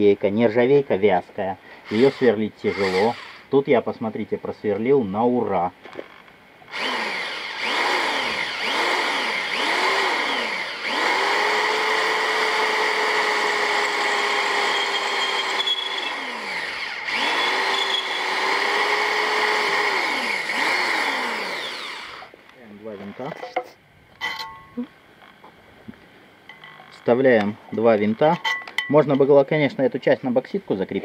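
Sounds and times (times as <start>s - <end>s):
cordless drill boring through steel: 1.8s - 3.5s, 6.7s - 22.3s.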